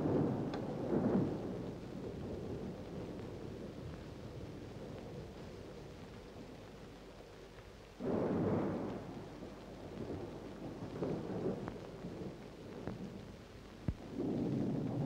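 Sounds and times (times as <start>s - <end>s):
thunder rumbling: 0.0s - 6.8s, 8.0s - 15.0s
steady rain: 0.0s - 15.0s.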